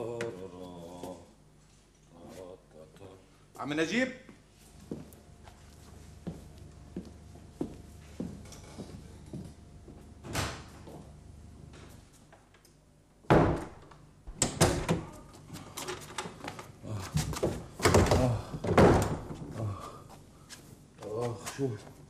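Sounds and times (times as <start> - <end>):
door shutting with a bang: 13.3 - 15.1.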